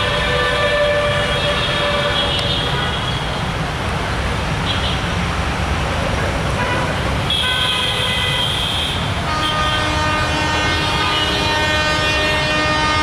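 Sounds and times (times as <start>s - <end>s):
locomotive horn blasts: 0.0s - 3.1s, 6.6s - 13.0s
train rumble: 9.1s - 13.0s.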